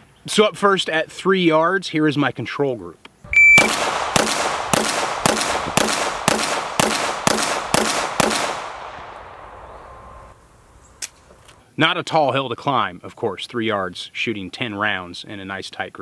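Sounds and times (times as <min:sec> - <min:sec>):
shot timer beep: 0:03.3 - 0:03.8
pistol shots echoing: 0:03.5 - 0:09.6.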